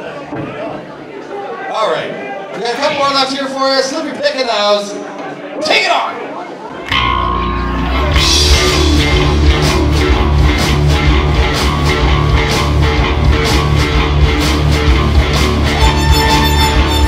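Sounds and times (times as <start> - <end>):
bass line: 6.9 - 17.0
electric guitars: 6.9 - 17.0
drum beat: 8.2 - 17.0.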